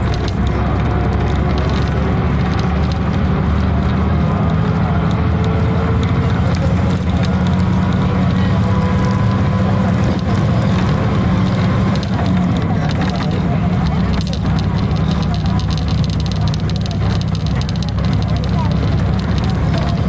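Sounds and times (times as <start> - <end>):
vehicle engine and road rumble: 0.0 - 20.0.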